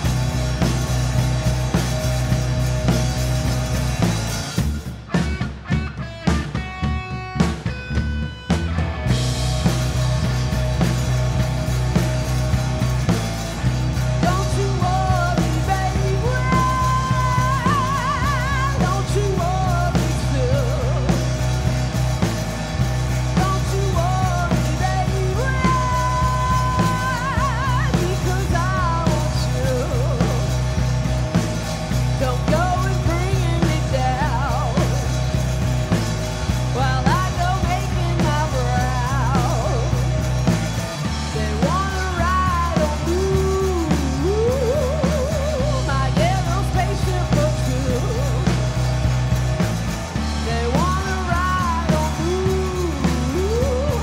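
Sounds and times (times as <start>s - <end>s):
bass guitar: 0.0s - 54.0s
drums: 0.0s - 54.0s
electric guitar: 0.0s - 54.0s
woman singing with vibrato: 14.2s - 21.2s, 23.3s - 30.7s, 32.2s - 35.2s, 36.7s - 40.0s, 41.3s - 48.7s, 50.4s - 54.0s.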